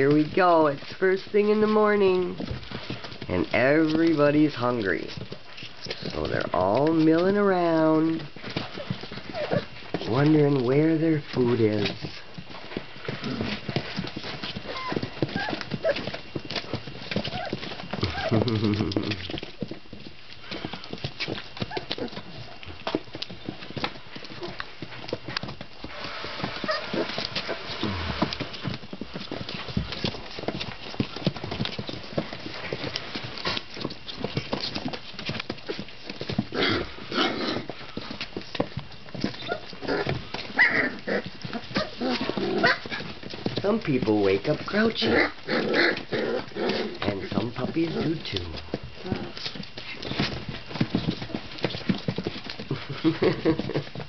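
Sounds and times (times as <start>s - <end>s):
puppies whimpering: 5.0s - 10.1s, 11.7s - 19.5s, 20.4s - 23.6s, 25.2s - 35.0s, 35.6s - 43.4s, 44.4s - 54.0s
puppy yelps: 9.3s - 9.7s, 14.7s - 16.1s, 17.2s - 18.4s, 26.6s - 27.6s, 39.4s - 42.9s.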